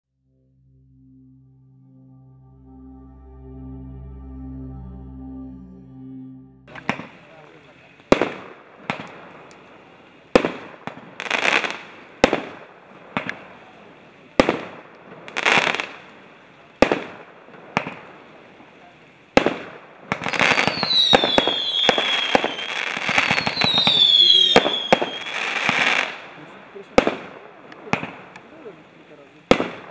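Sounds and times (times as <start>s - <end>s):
firework bangs: 6.7s - 29.9s
firework crackling: 6.7s - 29.9s
firework whistles: 20.2s - 26.3s.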